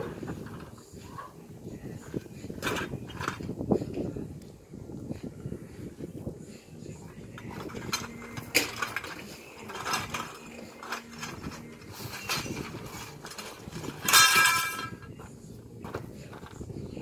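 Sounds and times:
metal poles clattering: 0.0s - 1.4s, 2.0s - 4.1s, 7.2s - 16.7s
metal poles knocking and clinking: 2.6s - 3.5s, 7.3s - 16.6s.

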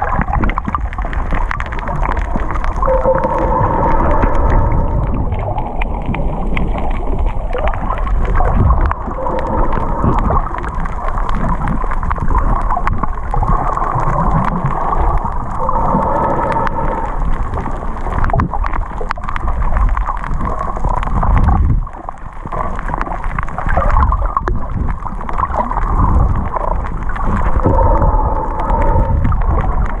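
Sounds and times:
underwater rumble of moving water: 0.0s - 30.0s
faint wavering hum: 2.8s - 6.4s, 15.3s - 18.0s, 27.4s - 30.0s.

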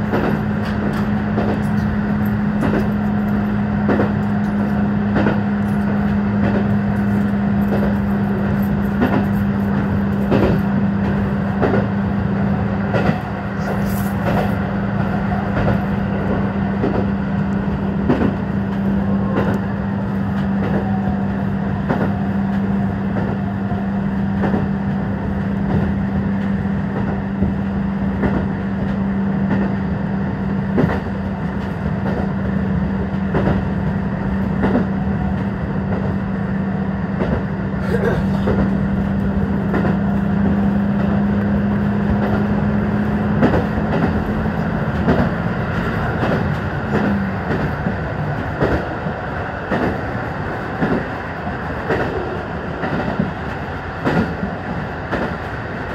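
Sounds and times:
wheels clicking over rail joints: 0.0s - 11.9s, 12.9s - 19.7s, 37.2s - 55.9s
diesel railcar engine hum: 0.0s - 55.9s.

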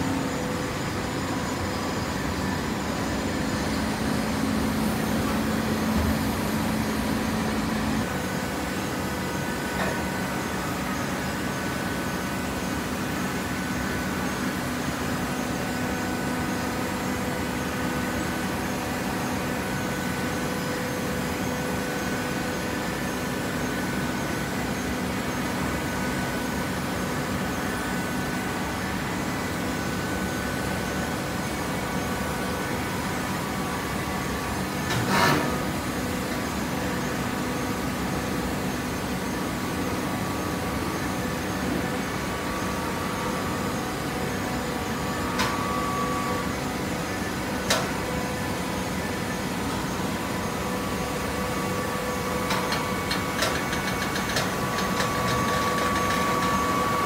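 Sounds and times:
hydraulic baler humming: 0.0s - 14.6s, 27.2s - 57.0s.

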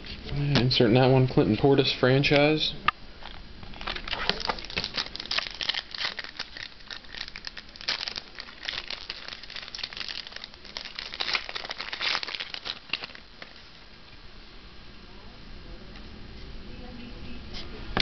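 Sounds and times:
foil wrapper crinkling: 3.2s - 13.8s.

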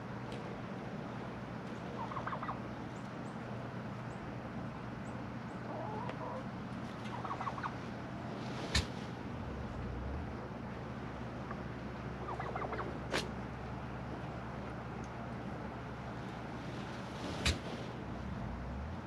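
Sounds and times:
turkey gobbling: 2.0s - 2.6s, 5.6s - 7.8s, 11.5s - 13.3s.

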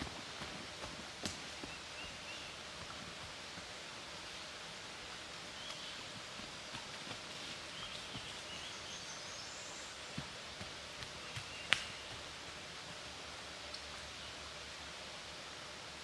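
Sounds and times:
light ticks and rustles: 0.0s - 1.8s, 5.1s - 9.3s
outdoor hiss: 0.0s - 16.0s
distant birdsong: 1.4s - 2.9s, 5.5s - 12.4s.

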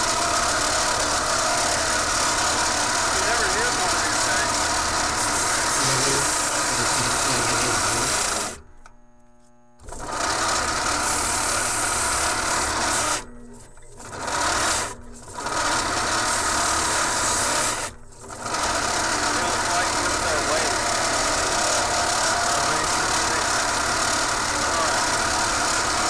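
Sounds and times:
belt sander rubbing noise: 0.0s - 8.6s, 15.7s - 26.0s
motor hum: 0.0s - 26.0s.

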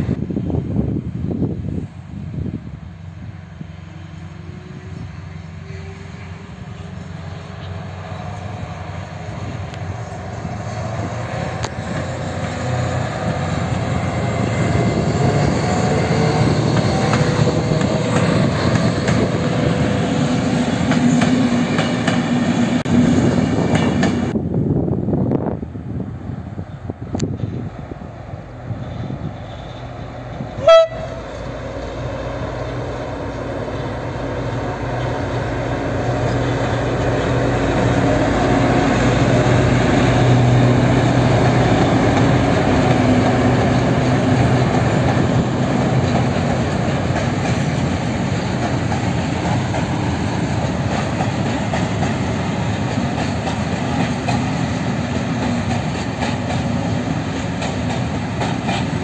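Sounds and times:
diesel locomotive engine drone: 0.0s - 59.0s
train horn toot: 4.4s - 7.1s, 30.5s - 31.5s
freight wagons clickety-clack: 41.4s - 59.0s.

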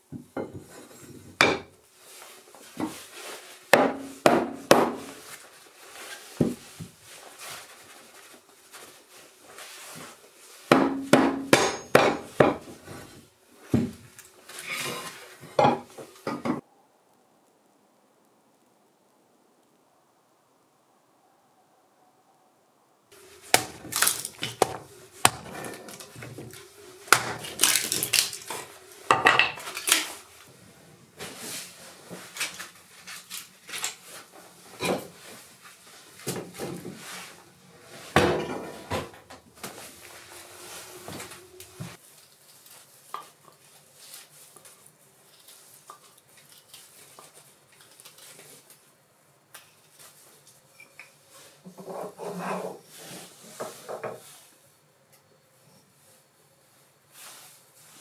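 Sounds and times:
wood pieces clattering: 23.3s - 30.2s.

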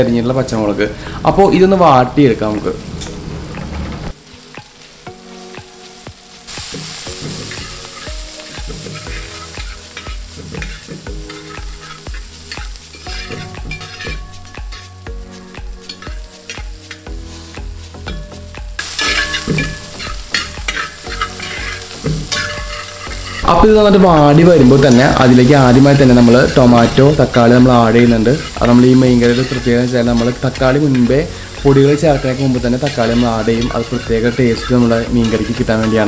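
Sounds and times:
vegetables sizzling in hot oil: 0.0s - 36.0s
spatula stirring and scraping: 7.1s - 14.9s, 18.8s - 23.5s, 25.9s - 36.0s.

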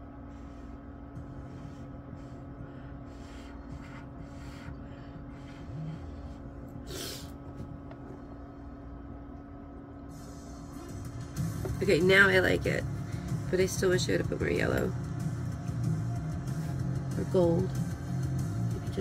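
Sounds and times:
steady low hum: 0.0s - 19.0s
breathy puffs of air: 2.1s - 7.4s.

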